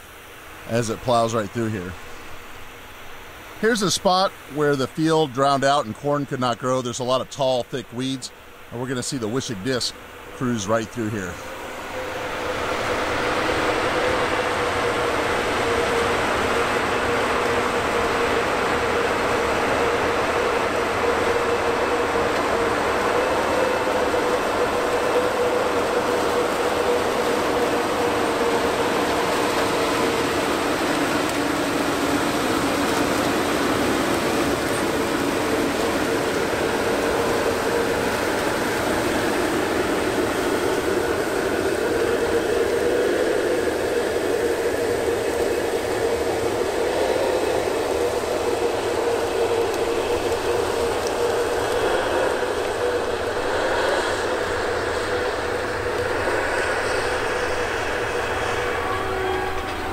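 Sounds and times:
mid-pitched whine: 0.0 - 59.9
tractor engine droning: 0.0 - 59.9.

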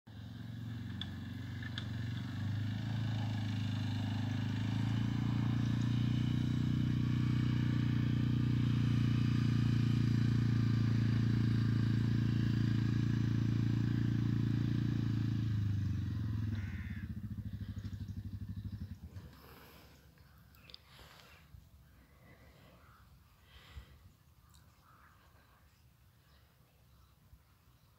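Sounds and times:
quad bike engine running: 0.1 - 21.2.

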